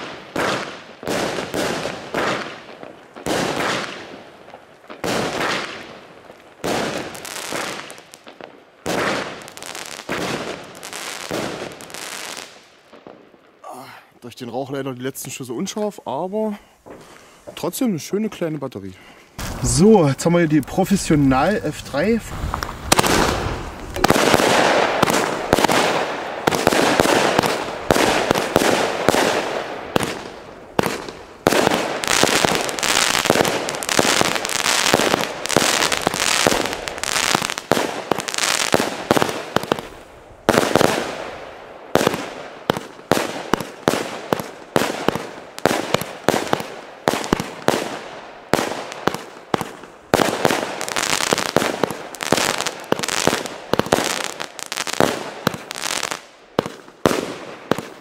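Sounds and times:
firework crackle: 0:00.0 - 0:13.8, 0:19.4 - 0:58.0
firework shots banging: 0:22.4 - 0:58.0.

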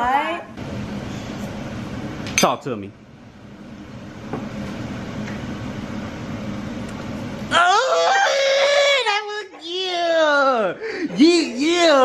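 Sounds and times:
young child crying loudly: 0:07.5 - 0:10.7.

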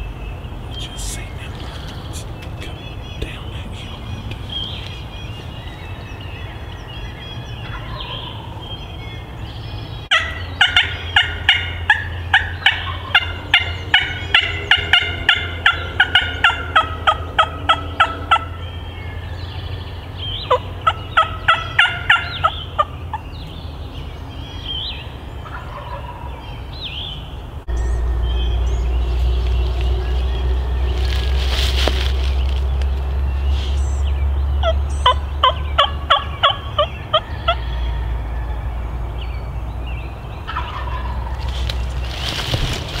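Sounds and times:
low wind rumble: 0:00.0 - 0:43.0
songbird chirps: 0:00.0 - 0:43.0
turkey yelping: 0:10.1 - 0:18.5, 0:20.5 - 0:23.2, 0:25.4 - 0:26.4, 0:34.6 - 0:37.6, 0:40.5 - 0:41.5.

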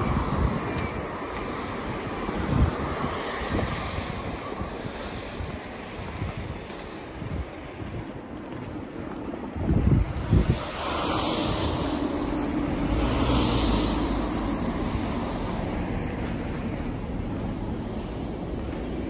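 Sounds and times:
outdoor noise: 0:00.0 - 0:19.0
passing vehicle engine rumble: 0:00.0 - 0:19.0.

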